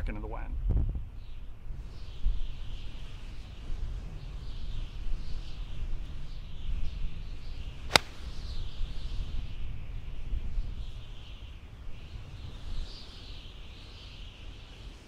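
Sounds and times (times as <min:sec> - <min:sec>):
wind rumble on microphone: 0:00.0 - 0:15.0
golf club striking ball: 0:07.9 - 0:08.4.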